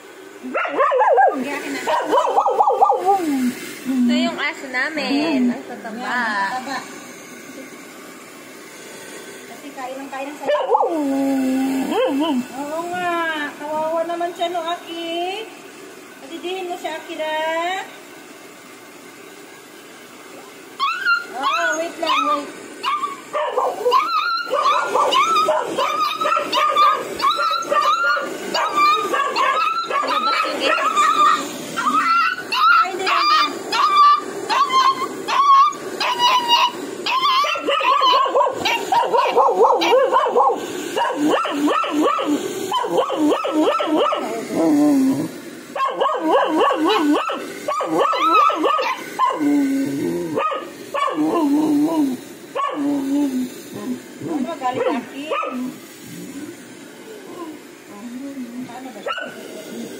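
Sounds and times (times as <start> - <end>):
puppy whining and yelping: 20.8 - 44.4, 45.8 - 49.4.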